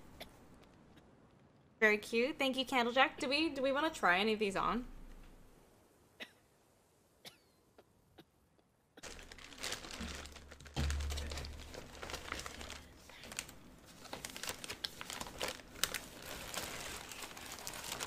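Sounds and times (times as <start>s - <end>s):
paper bag crinkling: 9.0s - 18.0s.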